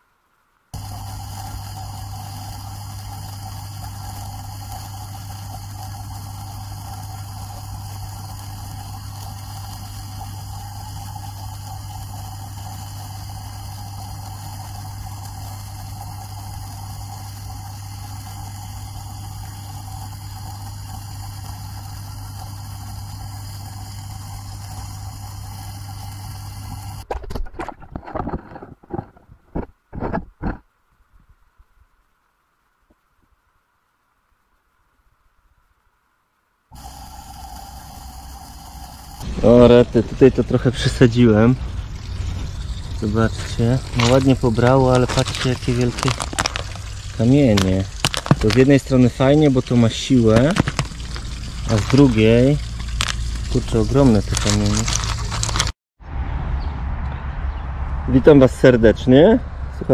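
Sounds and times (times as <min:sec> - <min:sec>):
underwater pump hum: 0:00.7 - 0:27.1, 0:36.7 - 0:55.7
rushing water: 0:37.8 - 0:55.7.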